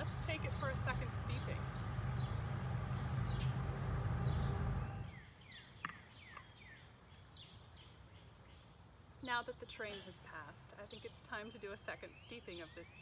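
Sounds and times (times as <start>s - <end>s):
passing train rumble: 0.0s - 5.2s
small birds chirping: 0.0s - 13.0s.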